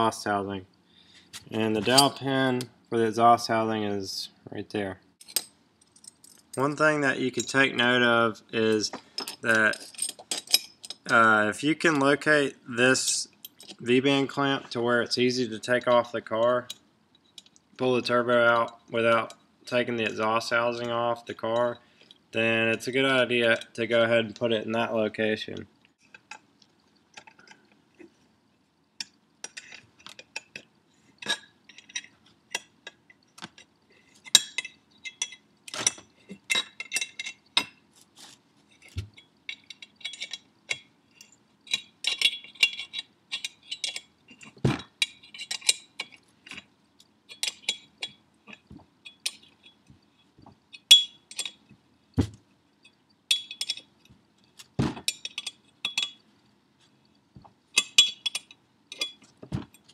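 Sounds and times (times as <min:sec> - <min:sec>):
wrench clinking on metal nut: 0:05.2 - 0:06.6, 0:08.7 - 0:11.2, 0:39.1 - 0:46.6, 0:52.8 - 0:53.9, 0:54.6 - 0:56.2.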